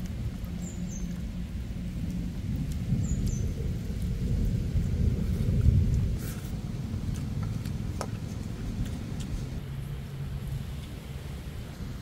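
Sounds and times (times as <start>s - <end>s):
thunder rumbling: 0.0s - 9.6s
steady rain: 0.0s - 12.0s.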